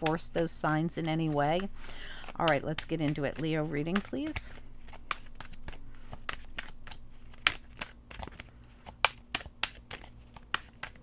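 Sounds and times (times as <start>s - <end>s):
cards shuffling flicks and slaps: 0.0s - 11.0s.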